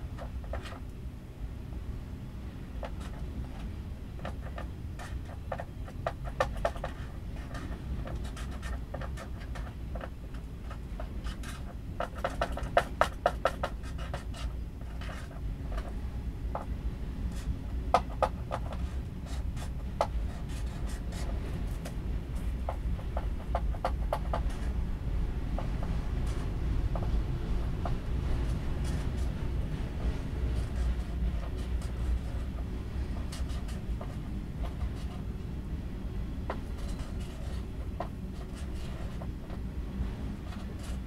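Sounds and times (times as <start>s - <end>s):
freight train rumbling past: 24.4s - 41.0s.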